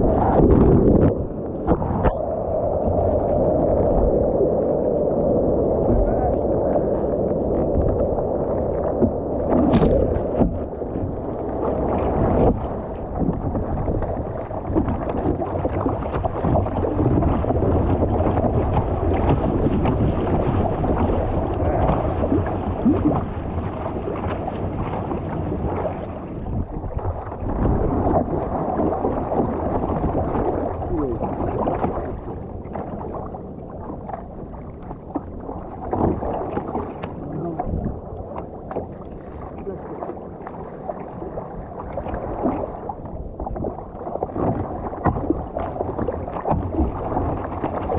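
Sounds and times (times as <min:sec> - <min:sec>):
water rushing around a boat hull: 0:00.0 - 0:47.9
wind on microphone: 0:00.0 - 0:47.9
sharp water splash: 0:09.5 - 0:10.7.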